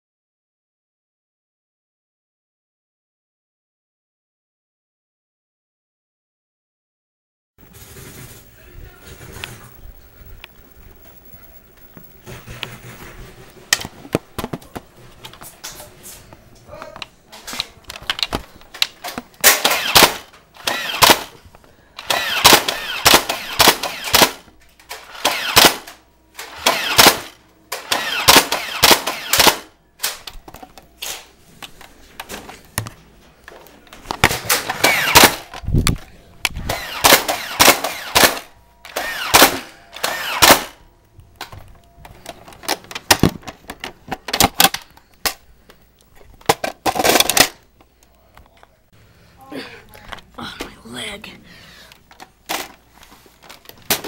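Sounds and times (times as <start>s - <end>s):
rapid gunfire bursts: 19.4s - 21.3s, 22.0s - 24.4s, 25.1s - 25.9s, 26.5s - 29.7s, 34.7s - 35.4s, 36.7s - 38.4s.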